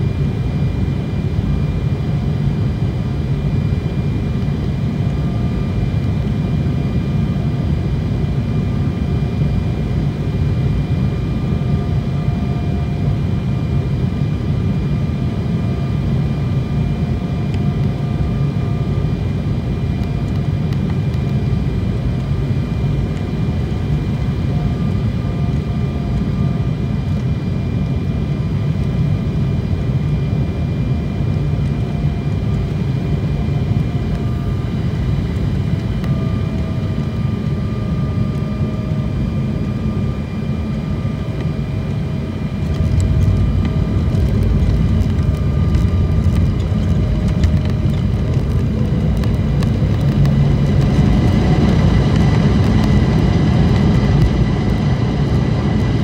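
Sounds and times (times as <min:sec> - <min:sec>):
jet engines droning: 0:00.0 - 0:56.0
wheels rumbling on runway: 0:17.5 - 0:56.0.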